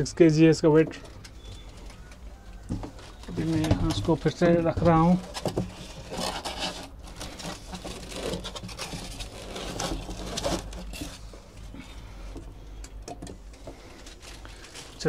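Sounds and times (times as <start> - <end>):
cardboard and packing rustles: 0.9 - 12.1, 13.4 - 15.0.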